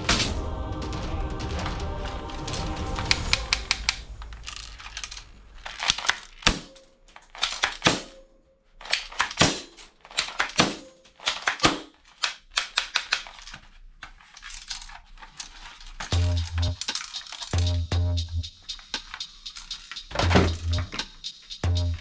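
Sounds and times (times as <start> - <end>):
plastic toy rifle clicks: 3.1 - 8.2, 8.8 - 16.1, 16.8 - 17.6.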